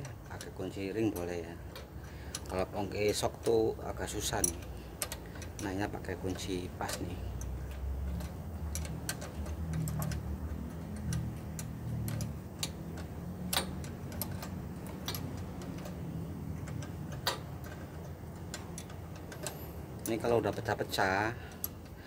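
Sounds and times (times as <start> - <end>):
low steady hum: 0.0 - 22.0
spanner metal clicks: 0.0 - 22.0.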